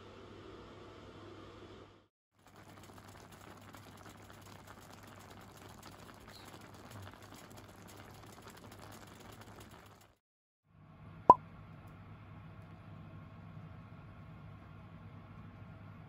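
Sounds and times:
crackle of small bubbles: 2.4 - 10.2.

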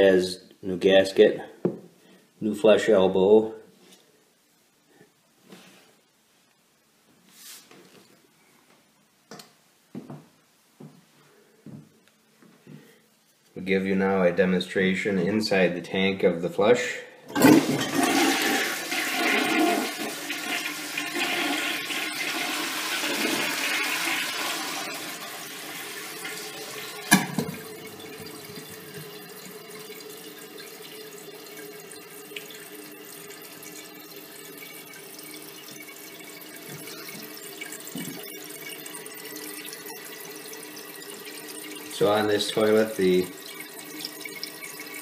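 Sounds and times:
toilet flushing: 17.3 - 45.0
hiss of toilet tank refilling: 17.4 - 30.1.

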